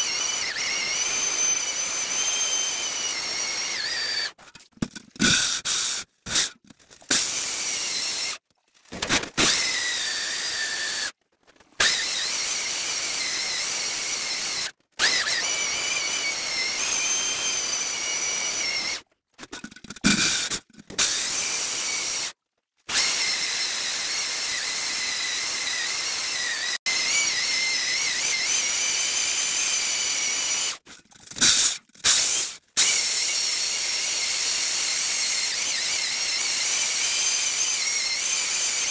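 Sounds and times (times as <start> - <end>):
core drill grinding into rock: 0.0 - 4.4, 9.3 - 11.2, 11.8 - 19.0, 22.9 - 30.8, 31.4 - 38.9.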